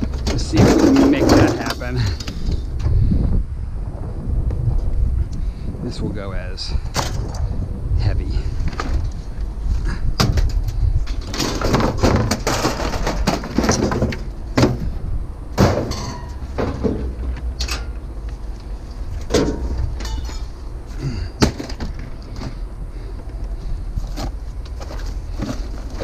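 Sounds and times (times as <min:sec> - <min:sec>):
sheet metal scraping and clanking: 0:00.0 - 0:02.3, 0:15.6 - 0:18.0
steady low rumble: 0:00.0 - 0:26.0
sharp metallic knocks: 0:19.3 - 0:20.6.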